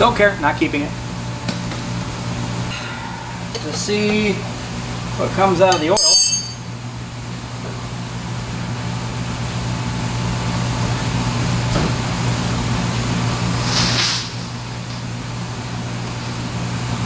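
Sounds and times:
low machine hum: 0.0 - 17.0
brief hiss: 13.6 - 14.3.

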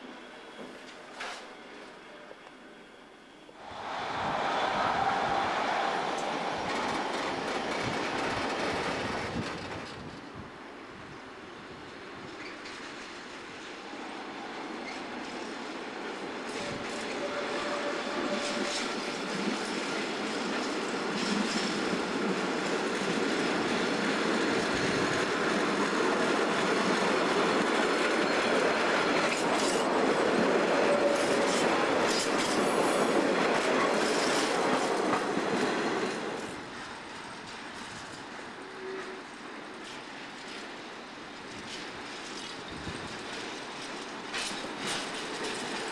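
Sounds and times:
train wheels clacking over rail joints: 41.4 - 45.9.

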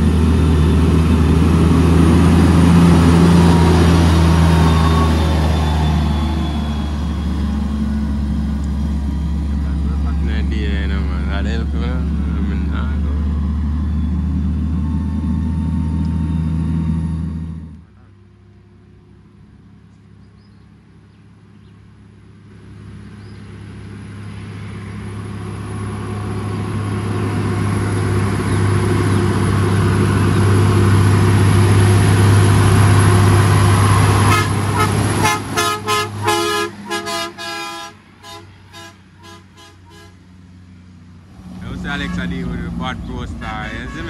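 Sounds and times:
truck engine approaching: 0.0 - 44.0
truck horn short toots: 34.2 - 40.2, 41.9 - 42.6, 43.6 - 44.0.

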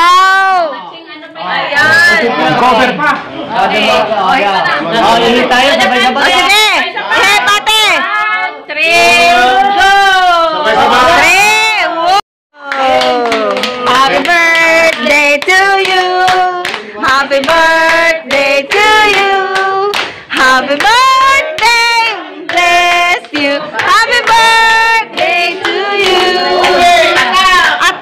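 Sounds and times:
hand clapping: 12.7 - 21.8
group of people singing: 13.2 - 28.0.

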